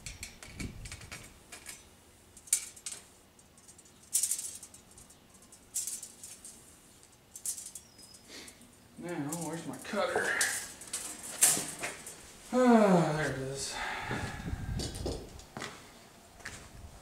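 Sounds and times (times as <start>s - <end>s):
metal tubing scraping and jangling: 0.0s - 12.3s.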